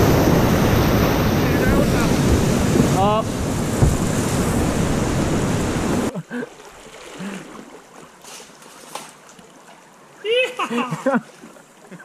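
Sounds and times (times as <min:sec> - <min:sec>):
whitewater rapids rushing: 0:00.0 - 0:07.7
faint water splashes: 0:00.0 - 0:12.0
slow-moving water: 0:00.0 - 0:12.0.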